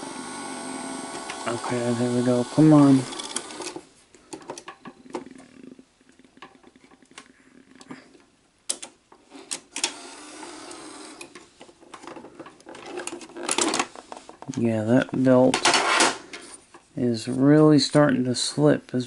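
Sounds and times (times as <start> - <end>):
small motor whirring: 0.0 - 3.8, 9.8 - 11.3
mechanism clicks and clunks: 3.0 - 5.3, 8.7 - 10.1, 10.7 - 16.4.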